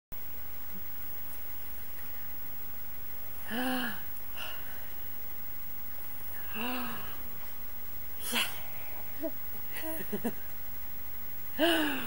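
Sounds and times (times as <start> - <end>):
steady low hum: 0.2 - 12.0
person cooing: 3.4 - 4.6, 6.4 - 7.2, 11.6 - 12.0.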